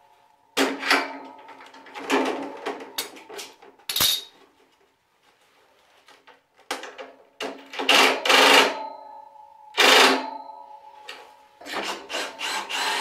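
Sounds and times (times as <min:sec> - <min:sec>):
metal tools clinking on concrete: 0:03.9 - 0:04.4
metallic ring: 0:08.7 - 0:11.4.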